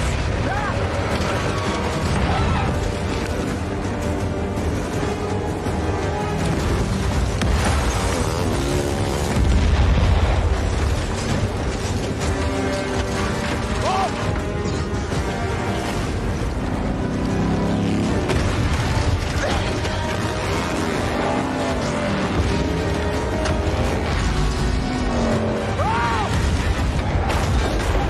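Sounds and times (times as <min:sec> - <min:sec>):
car engines revving: 0:00.0 - 0:28.0
film music score: 0:00.0 - 0:28.0
explosions: 0:09.2 - 0:12.4.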